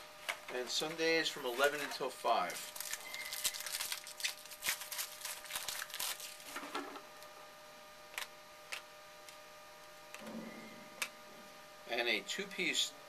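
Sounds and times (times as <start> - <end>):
card wrapper rustling and clicking: 2.5 - 6.7.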